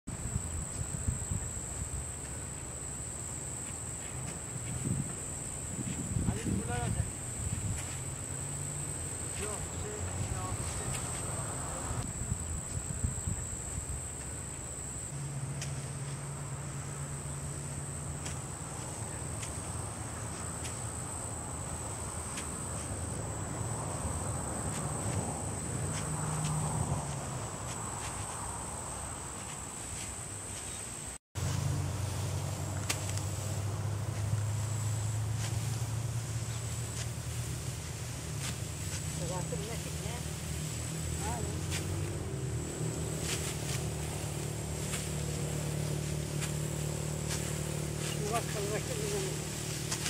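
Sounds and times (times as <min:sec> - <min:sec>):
wind rumbling on microphone: 0:00.1 - 0:02.1, 0:04.5 - 0:14.3
insects droning: 0:00.1 - 0:50.0.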